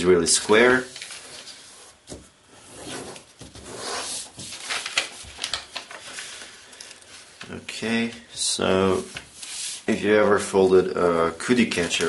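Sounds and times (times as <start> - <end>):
paper rustling and crinkling: 0.7 - 2.2, 2.9 - 8.2, 11.5 - 12.0
sharp paper crackles: 4.4 - 7.5, 11.6 - 12.0.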